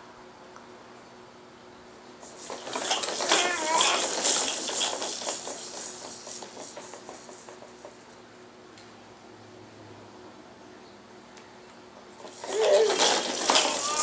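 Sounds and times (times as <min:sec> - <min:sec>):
baby jumper rattling and clicking: 0:02.2 - 0:08.2, 0:12.1 - 0:14.0
baby squealing: 0:02.9 - 0:04.2, 0:12.4 - 0:14.0.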